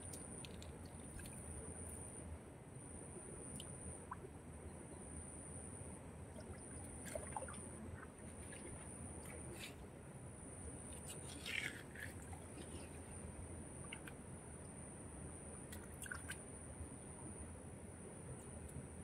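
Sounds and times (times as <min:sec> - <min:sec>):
muddy water sloshing: 0:06.3 - 0:09.8, 0:10.9 - 0:13.2, 0:15.7 - 0:16.4.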